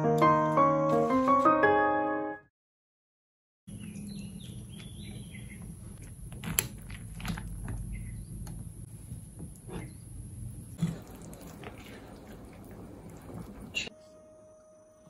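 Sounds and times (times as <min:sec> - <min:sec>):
low room hum: 0:03.7 - 0:14.8
faint chirping: 0:07.8 - 0:08.5.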